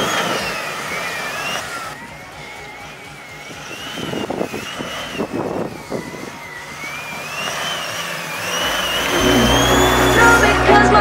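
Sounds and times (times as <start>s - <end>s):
pickup truck driving on rough track: 0.0s - 11.0s
thin wavering high whistle: 3.8s - 11.0s.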